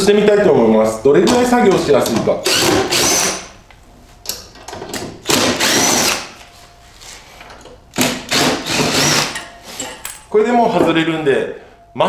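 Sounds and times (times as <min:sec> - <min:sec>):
impact driver whine: 0:02.4 - 0:03.5, 0:05.2 - 0:06.4, 0:08.0 - 0:09.5.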